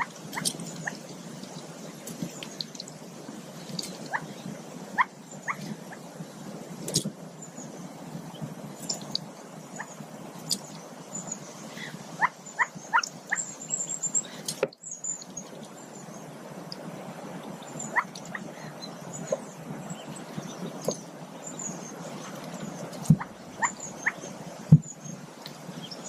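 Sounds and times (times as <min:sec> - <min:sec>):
ducklings peeping: 0:00.0 - 0:02.9, 0:05.0 - 0:06.1, 0:08.3 - 0:15.8, 0:17.3 - 0:26.0
faint clicks: 0:00.0 - 0:03.0, 0:24.7 - 0:25.6
steady hiss: 0:00.0 - 0:26.0.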